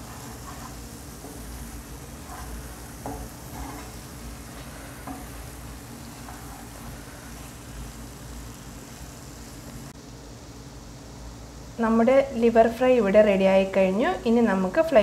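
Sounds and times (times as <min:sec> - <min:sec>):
spatula scraping a pan: 0:00.0 - 0:07.8
liver sizzling in a pan: 0:00.0 - 0:09.9.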